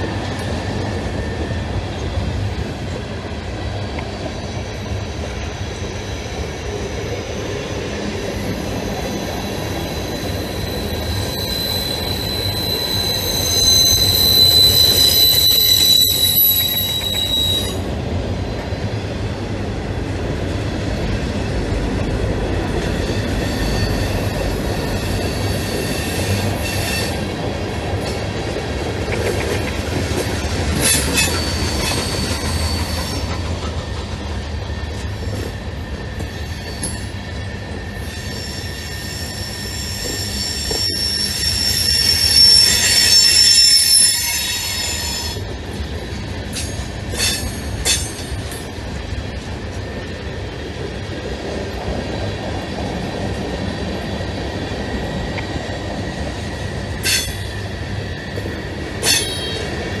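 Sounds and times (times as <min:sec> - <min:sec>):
train wheels rumbling on rail: 0:00.0 - 1:00.0
high-pitched wheel squeal: 0:08.6 - 0:17.8, 0:23.0 - 0:27.2, 0:37.9 - 0:45.4.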